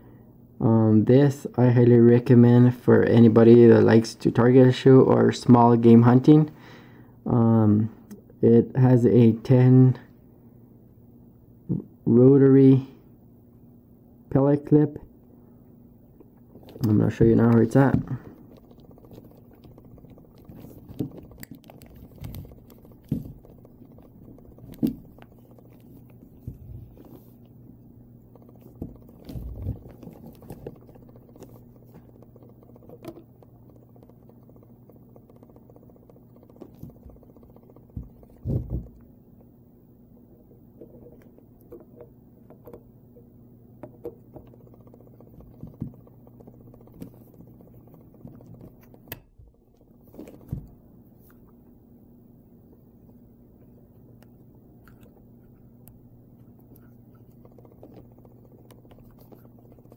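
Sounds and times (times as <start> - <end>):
steady low hum: 0.0 - 59.9
dull thumps: 16.5 - 27.4, 28.3 - 39.1.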